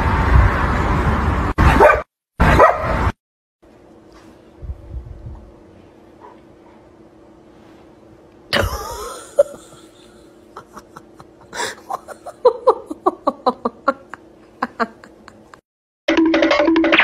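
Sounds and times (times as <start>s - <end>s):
person laughing: 8.5s - 15.6s.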